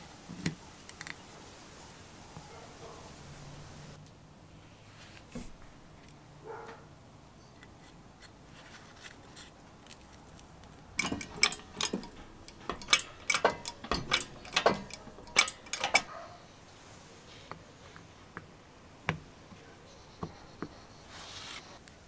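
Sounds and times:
sharp metal clicks and clinks: 11.0s - 16.3s.

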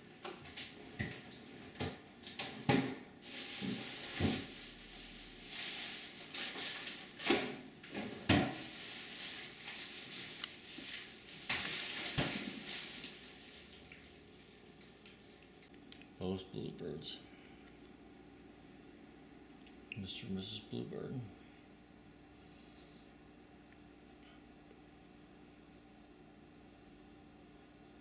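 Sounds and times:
hissy rustling: 3.2s - 7.2s, 8.4s - 14.9s.

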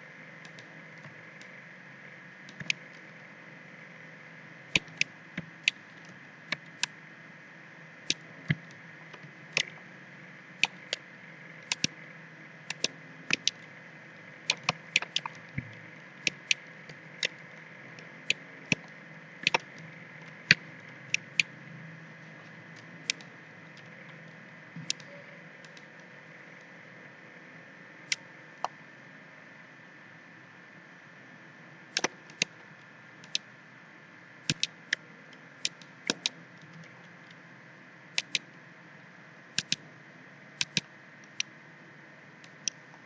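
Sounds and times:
thin high whine: 0.0s - 43.0s
computer mouse clicking: 0.4s - 1.5s, 2.4s - 3.0s, 4.7s - 7.0s, 8.1s - 9.8s, 10.6s - 11.0s, 11.6s - 12.0s, 12.7s - 13.7s, 14.4s - 21.6s, 22.7s - 26.1s, 31.9s - 32.6s, 33.2s - 33.5s, 34.4s - 35.0s, 35.6s - 37.4s, 38.2s - 38.5s, 39.6s - 39.8s, 40.6s - 41.5s.

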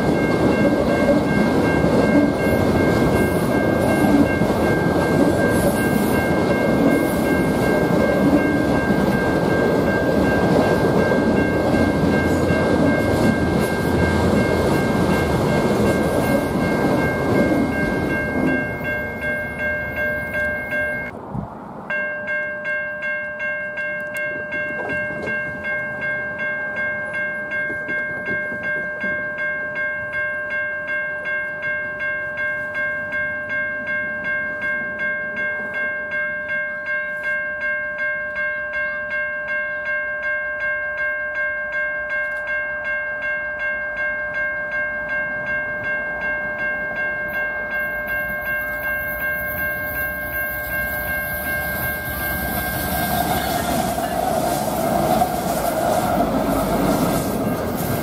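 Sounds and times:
crossing warning bell ringing: 0.0s - 21.2s, 21.9s - 58.0s
approaching train noise: 0.0s - 29.2s, 44.9s - 58.0s.

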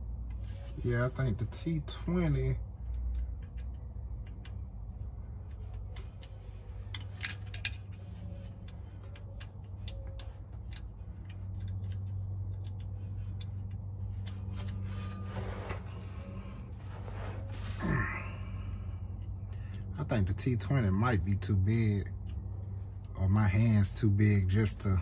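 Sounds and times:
steady low hum: 0.0s - 25.0s
metallic clicks of screwdriver bit: 2.9s - 4.6s, 5.5s - 14.8s.

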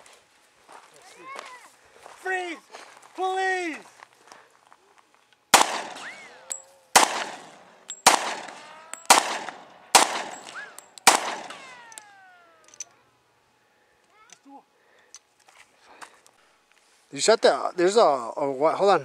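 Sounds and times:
pistol shots: 5.5s - 12.0s.

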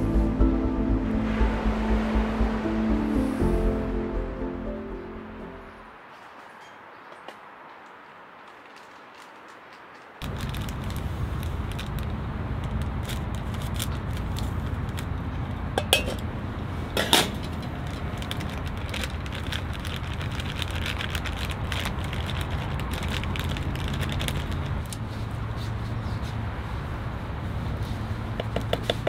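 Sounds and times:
surf: 0.0s - 5.7s
wind: 0.0s - 29.0s.

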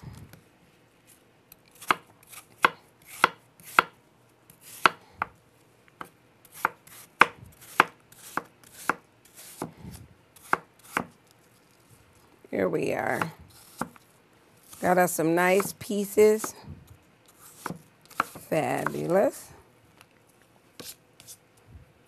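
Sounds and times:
knife chopping on wooden board: 4.8s - 5.0s, 6.0s - 9.7s, 10.4s - 11.1s, 15.6s - 15.8s, 17.6s - 19.1s.

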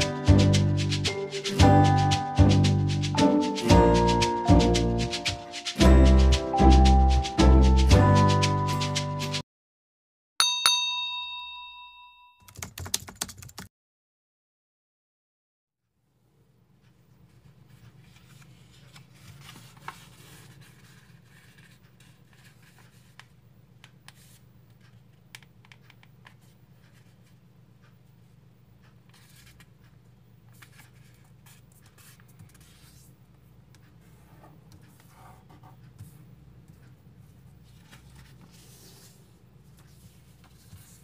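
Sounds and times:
paper rustling and folding: 17.3s - 23.3s, 30.5s - 33.1s, 37.6s - 41.0s.

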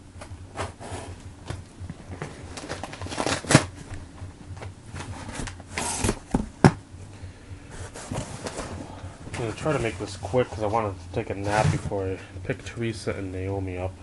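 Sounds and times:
packaging rustling and crinkling: 2.0s - 4.0s.

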